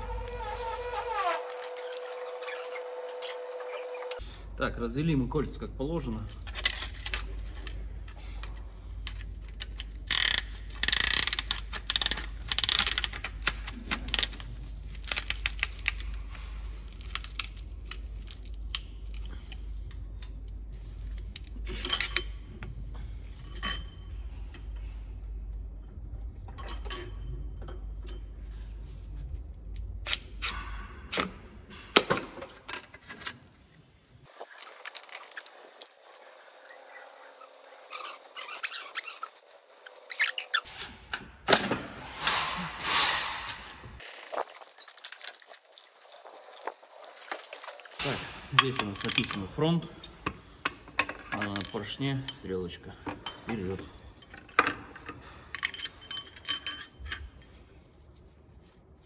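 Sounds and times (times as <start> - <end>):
metal parts clinking: 6.0 - 33.6, 34.2 - 36.0, 46.9 - 58.0.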